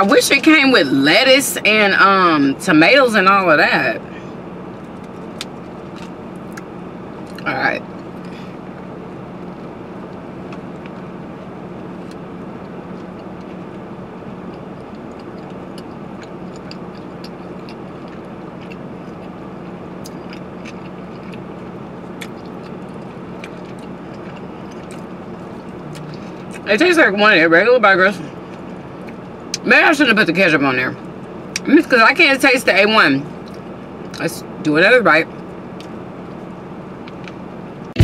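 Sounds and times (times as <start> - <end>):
person chewing: 4.9 - 7.4, 14.4 - 26.6.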